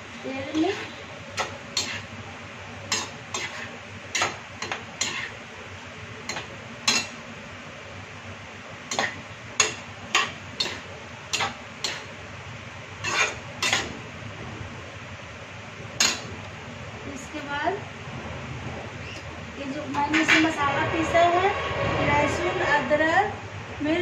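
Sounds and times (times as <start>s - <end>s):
metal spatula scraping a pan: 0.5s - 2.1s, 2.9s - 5.4s, 6.3s - 7.1s, 8.9s - 12.1s, 13.0s - 13.9s.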